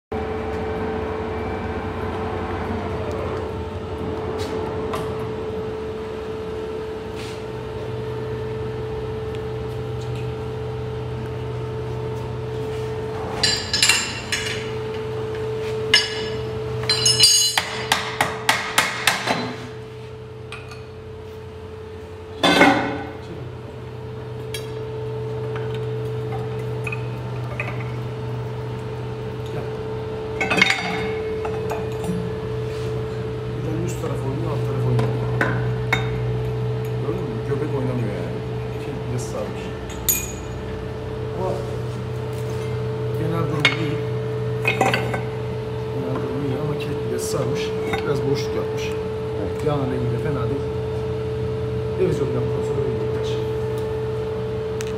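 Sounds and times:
lathe humming: 0.1s - 19.2s.

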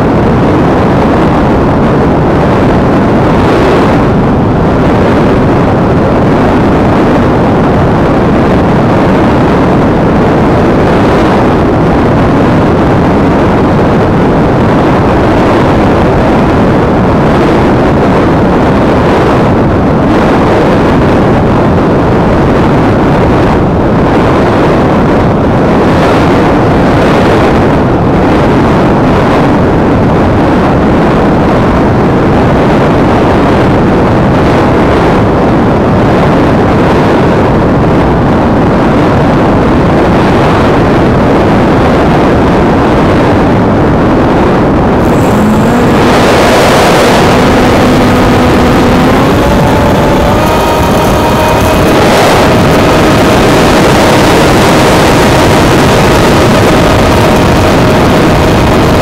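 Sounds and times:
loud wind noise: 0.0s - 59.0s
electric motor and propeller whine: 44.8s - 59.0s.

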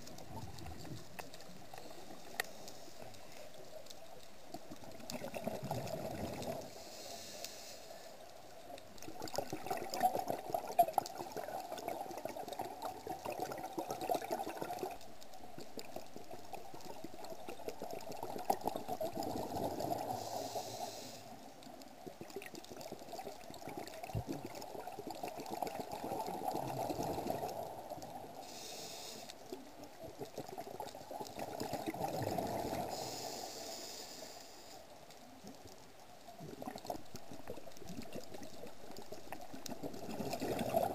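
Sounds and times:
diver exhaling bubbles underwater: 39.8s - 40.9s.

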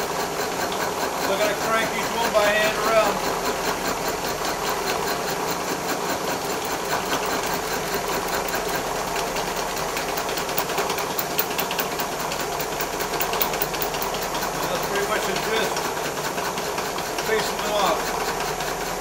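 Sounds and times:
milling machine cutting metal: 0.0s - 19.0s
rapid ticking of cutter teeth: 6.4s - 15.9s.

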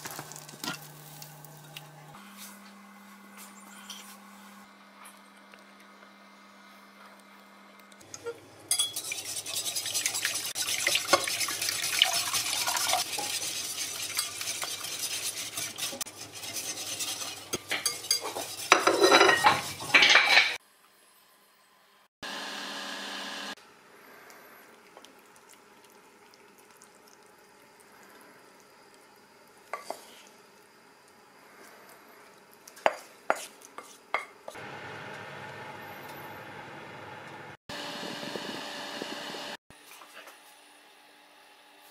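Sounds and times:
wire whisk scraping glass bowl: 8.7s - 20.6s.

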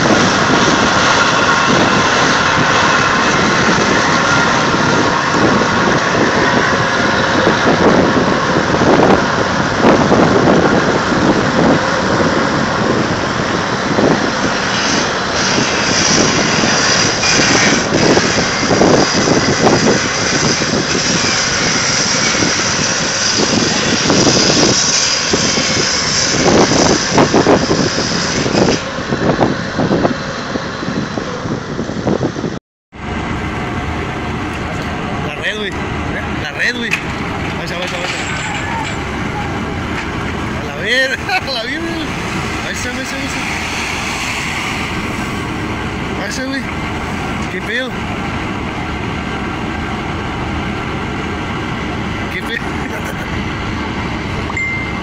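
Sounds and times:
tugboat engine under load: 0.0s - 55.0s.

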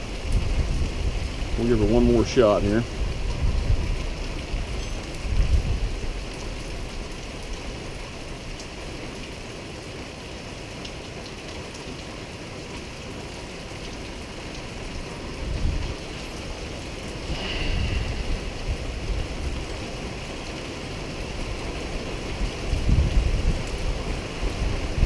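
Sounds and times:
rain hiss: 0.0s - 25.0s
low rumbles: 17.0s - 20.4s.

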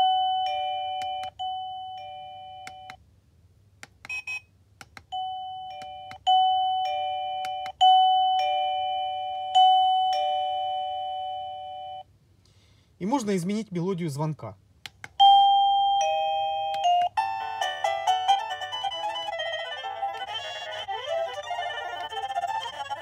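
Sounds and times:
doorbell electronic chime: 0.0s - 3.0s, 5.1s - 12.0s, 15.2s - 18.2s.

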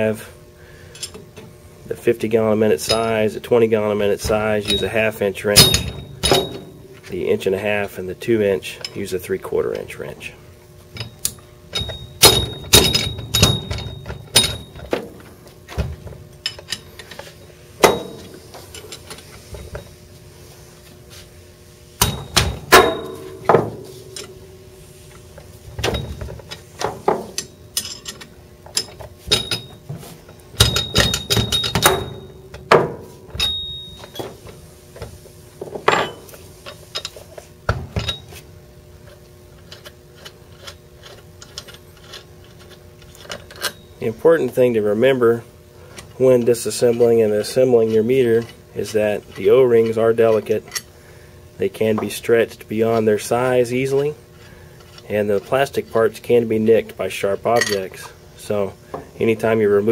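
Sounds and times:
wrench clinking on metal bolts: 2.8s - 3.4s, 4.3s - 6.8s, 11.0s - 15.0s, 25.8s - 29.8s, 30.6s - 32.4s, 33.3s - 34.3s, 57.5s - 58.1s
tools set down on bench: 35.0s - 36.4s.

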